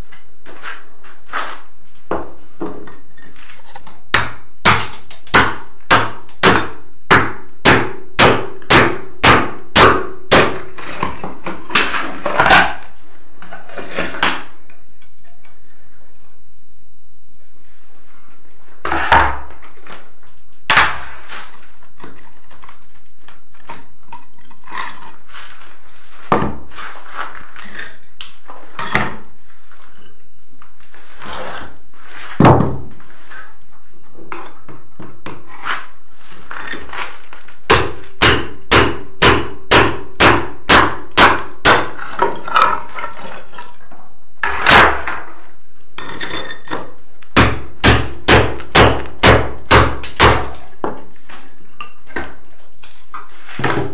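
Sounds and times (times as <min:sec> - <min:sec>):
hammer striking chisel: 0:04.1 - 0:10.6, 0:37.7 - 0:42.4, 0:47.4 - 0:51.0.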